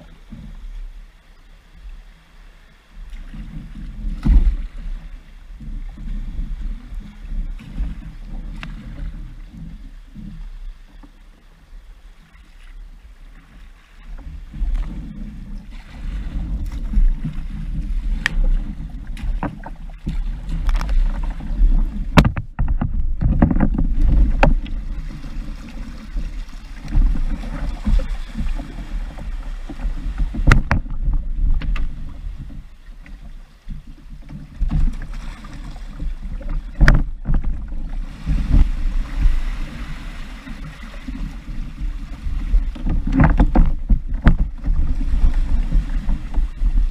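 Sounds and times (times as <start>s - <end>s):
kayak grinding over cobblestones: 12.7s - 46.9s.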